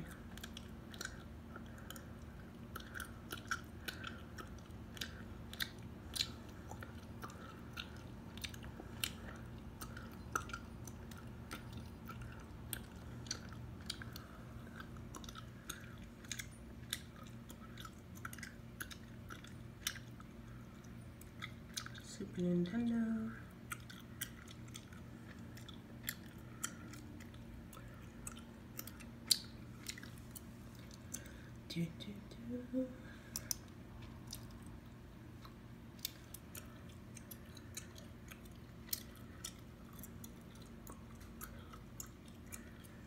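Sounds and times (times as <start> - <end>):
gum chewing mouth clicks: 0.0 - 22.1, 23.4 - 31.5, 33.0 - 43.0
faint low hum: 0.0 - 43.0.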